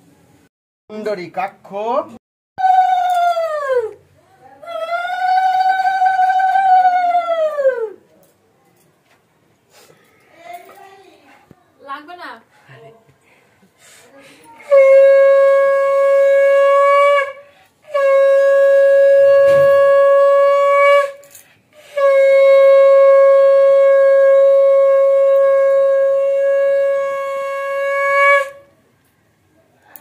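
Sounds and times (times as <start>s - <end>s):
conch shell blasts: 14.7s - 28.7s.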